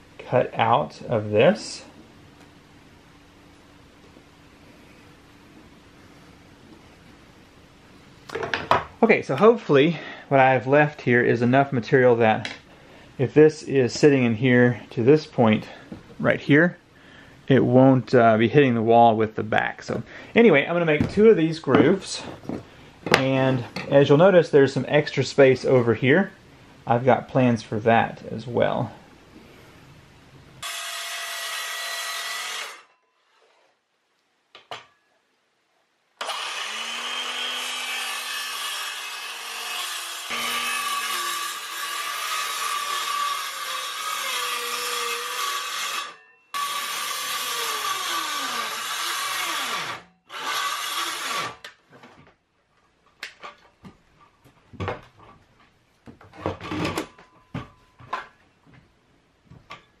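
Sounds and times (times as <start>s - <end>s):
circular saw cutting wood: 30.6s - 32.9s, 36.2s - 51.7s.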